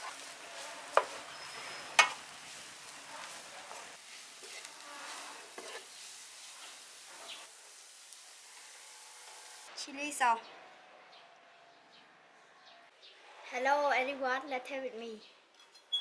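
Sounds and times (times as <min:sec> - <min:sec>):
spatula scraping frying pan: 0:00.0 - 0:09.4
light sizzle: 0:00.0 - 0:09.8.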